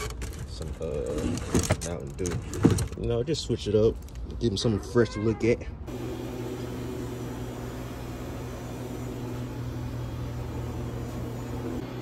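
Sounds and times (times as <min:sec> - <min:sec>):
vending machine cooling hum: 0:05.9 - 0:12.0.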